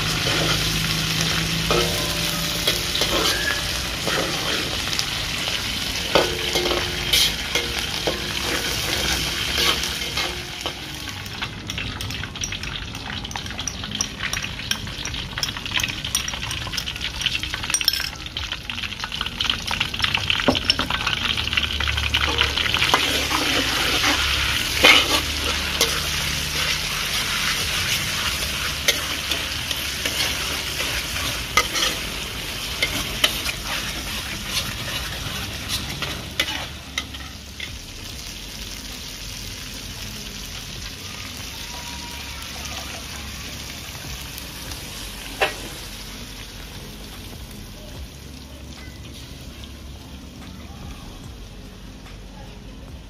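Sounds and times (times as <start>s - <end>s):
metal spatula scraping wok: 0.0s - 12.7s, 20.6s - 37.8s
food sizzling in a wok: 0.0s - 53.0s.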